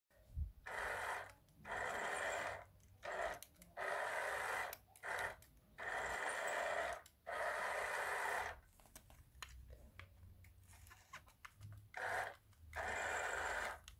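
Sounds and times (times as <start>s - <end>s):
toy car electric motor whirring: 0.6s - 8.6s, 11.9s - 13.9s.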